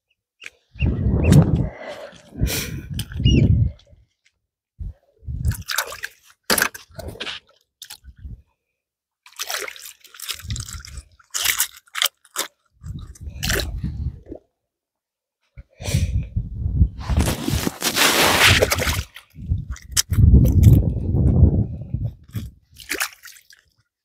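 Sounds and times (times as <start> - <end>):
wet squelching and crunching: 9.2 - 13.8, 17.2 - 20.9, 22.2 - 23.8.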